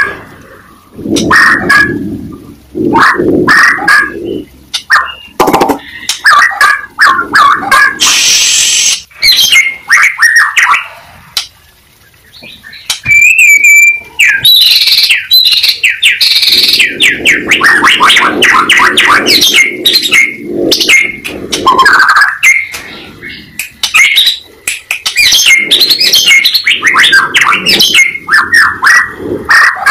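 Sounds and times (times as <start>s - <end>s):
bird singing whistled phrases: 8.0s - 10.9s, 12.0s - 28.7s.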